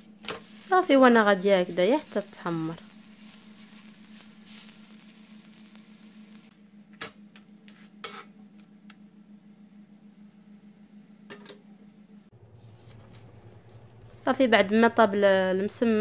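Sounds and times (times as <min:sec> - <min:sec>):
low steady hum: 0:00.0 - 0:16.0
flatbread sizzling in oil: 0:00.3 - 0:06.5.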